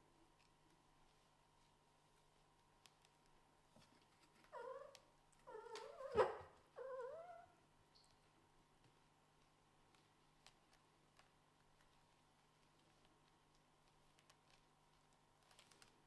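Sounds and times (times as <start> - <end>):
kittens squealing meows: 4.6 - 7.5.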